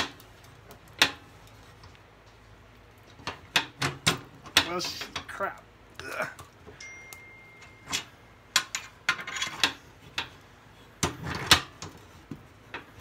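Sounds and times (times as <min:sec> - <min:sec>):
faint high tone: 0:06.8 - 0:08.5.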